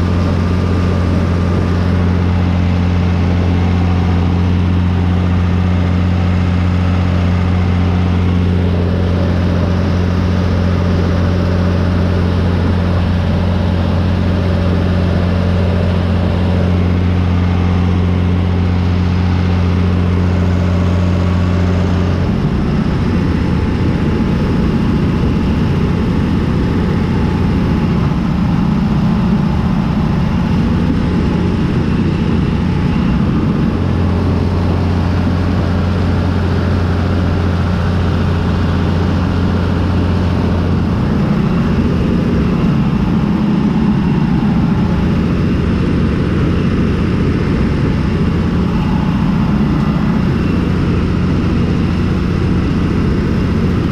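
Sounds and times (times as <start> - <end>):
tractor diesel engine running: 0.0 - 53.9.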